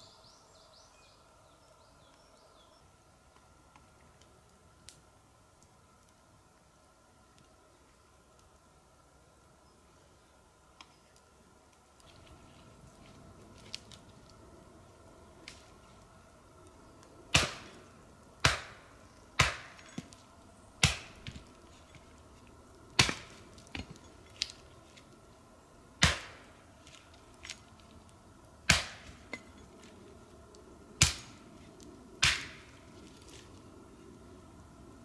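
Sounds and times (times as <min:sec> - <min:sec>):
hatchet chopping wood: 0:17.3 - 0:17.7, 0:18.4 - 0:20.1, 0:20.8 - 0:21.4, 0:23.0 - 0:24.0, 0:26.0 - 0:26.4, 0:28.7 - 0:29.5, 0:31.0 - 0:31.4, 0:32.2 - 0:32.7.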